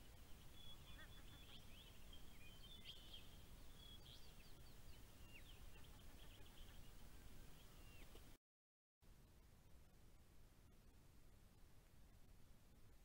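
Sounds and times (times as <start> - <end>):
low background hiss: 0.0 - 8.3, 9.0 - 13.0
birds chirping: 0.0 - 8.4.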